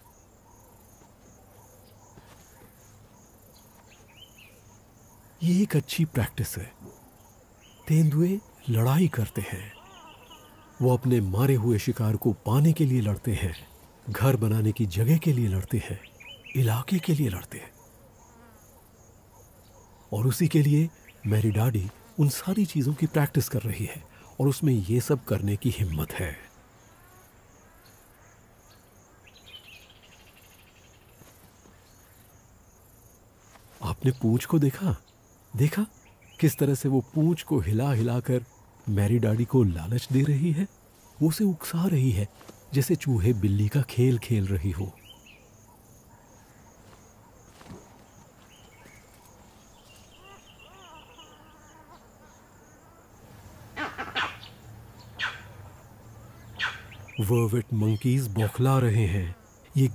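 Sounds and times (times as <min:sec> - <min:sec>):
birds: 0:00.0 - 0:59.9
insect chirping: 0:00.0 - 0:59.9
monkey alarm calls: 0:45.0 - 0:52.0, 0:53.7 - 0:57.3.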